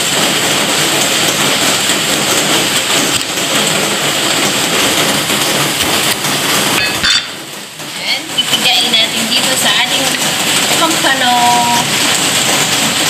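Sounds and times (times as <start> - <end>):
heavy rain falling: 0.0 - 13.0.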